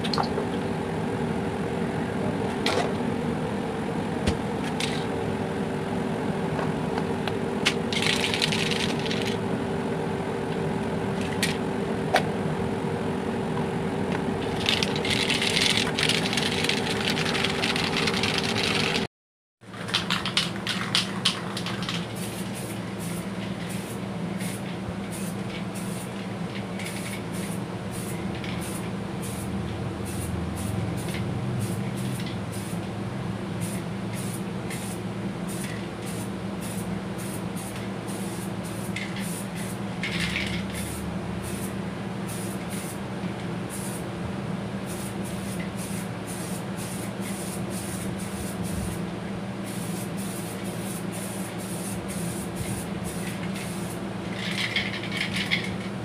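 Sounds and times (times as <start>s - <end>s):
steady low hum: 0.0s - 19.1s, 20.2s - 56.0s.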